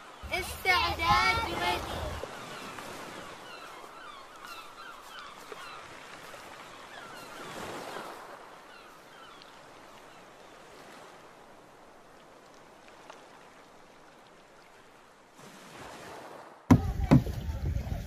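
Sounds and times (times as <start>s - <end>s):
birds chirping: 0.0s - 10.6s
paddles splashing in water: 0.0s - 18.0s.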